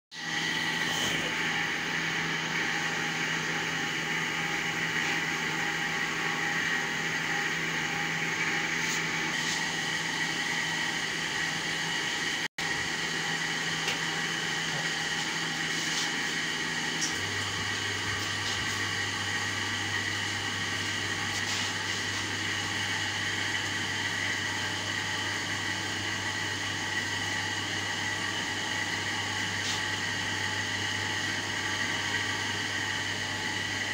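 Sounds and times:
hydraulic pump hum and whine: 0.2s - 33.9s.

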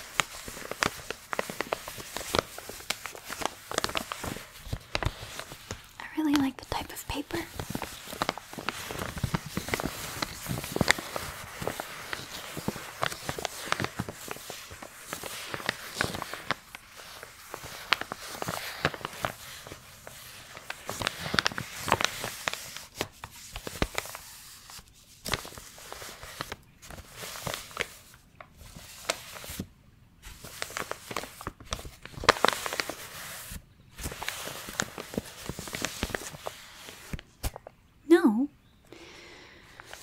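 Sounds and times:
paper envelope crinkling: 0.0s - 37.7s, 39.6s - 40.0s.

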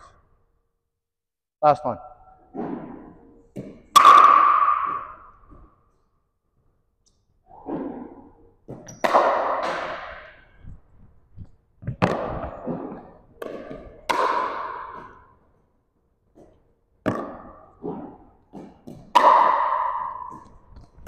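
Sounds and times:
ball bouncing on wooden floor: 2.6s - 5.7s, 8.7s - 10.2s, 16.3s - 21.0s.

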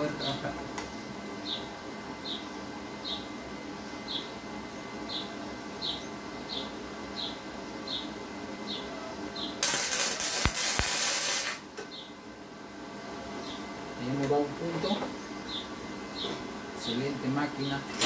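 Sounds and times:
welding arc crackling and hissing: 9.6s - 11.7s.

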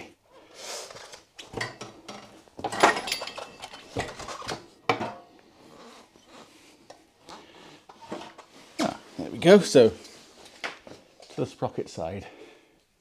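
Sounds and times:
metal clanks knocks and scrapes: 7.9s - 9.0s.

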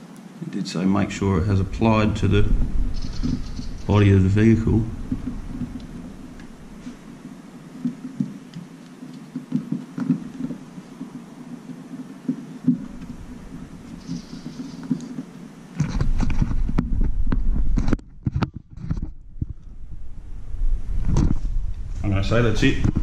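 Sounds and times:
low steady hum: 0.0s - 23.0s
microphone handling noise: 1.0s - 23.0s
fingers tapping and rubbing: 2.4s - 19.7s.

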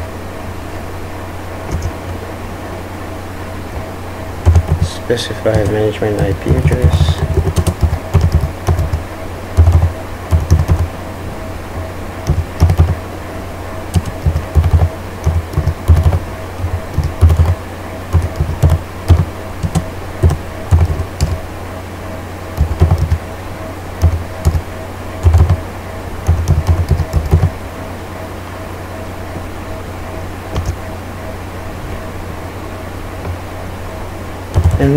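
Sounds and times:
typing on computer keyboard: 1.7s - 2.0s, 4.4s - 4.9s, 5.5s - 10.9s, 12.2s - 13.0s, 13.9s - 21.4s, 22.6s - 23.2s, 24.0s - 25.6s, 26.2s - 27.5s, 30.5s - 30.8s, 34.5s - 34.9s.

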